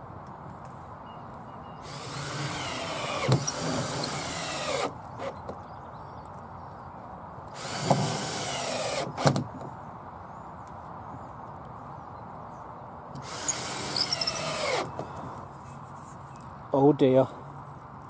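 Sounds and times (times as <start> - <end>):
drill-driver driving screws: 1.8 - 5.4, 7.6 - 9.5, 13.2 - 14.9.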